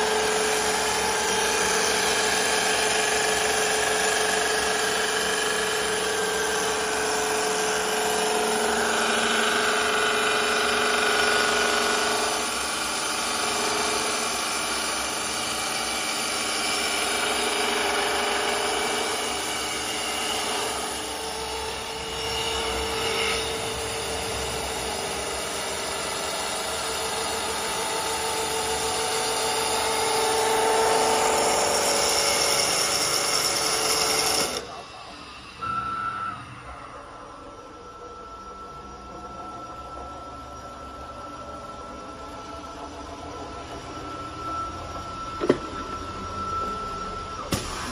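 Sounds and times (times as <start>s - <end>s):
lathe machine whine: 0.0s - 47.9s.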